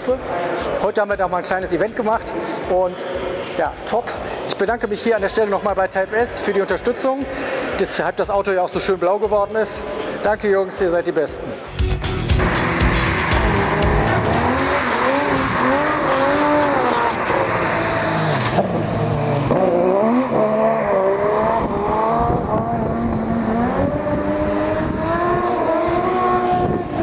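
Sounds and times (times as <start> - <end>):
race car engine revving: 12.3 - 27.0.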